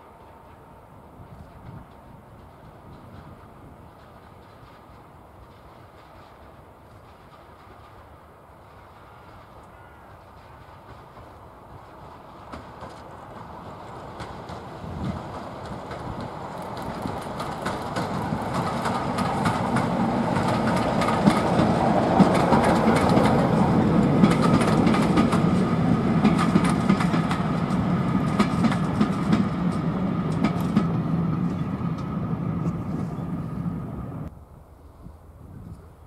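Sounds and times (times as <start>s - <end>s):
wheels clicking over rail joints: 9.6s - 32.8s
locomotive engine drone: 11.4s - 34.6s.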